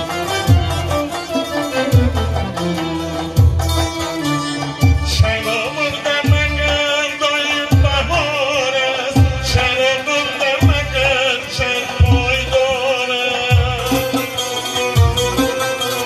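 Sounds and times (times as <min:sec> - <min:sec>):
folk instrumental accompaniment: 0:00.0 - 0:16.0
person singing: 0:04.8 - 0:14.8.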